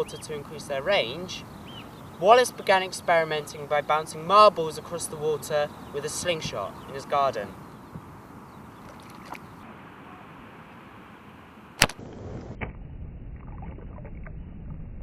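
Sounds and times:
background hiss: 0:00.0 - 0:12.2
object splashing into water: 0:08.8 - 0:09.4
sharp snap: 0:11.8 - 0:12.8.

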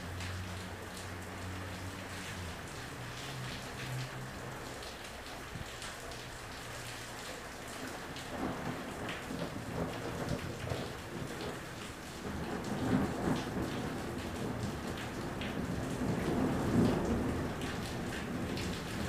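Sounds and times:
rain falling: 0:00.0 - 0:19.0
thunder rumbling: 0:08.3 - 0:19.0.

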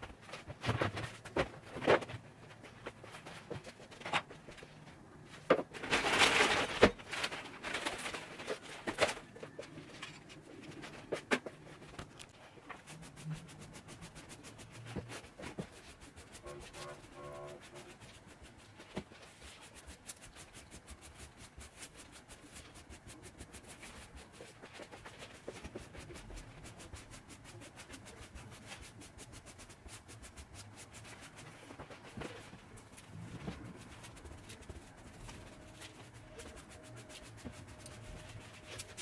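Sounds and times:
brush sweeping fabric: 0:12.7 - 0:39.0.

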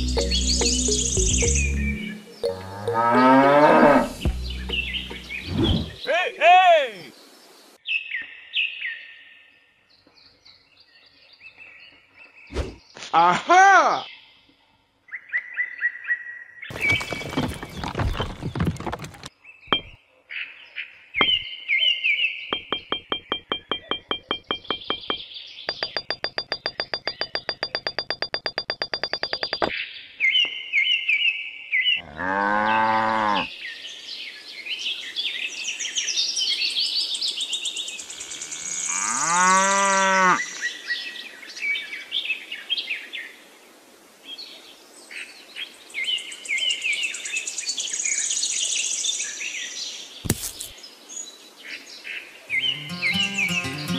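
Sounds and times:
low rising and falling calls: 0:00.0 - 0:06.2, 0:52.5 - 0:53.9
rapid clicks: 0:22.6 - 0:29.7.

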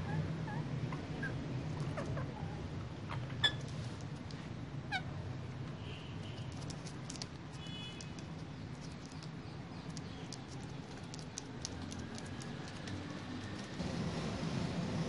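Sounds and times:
parakeet squawk: 0:04.9 - 0:05.1.

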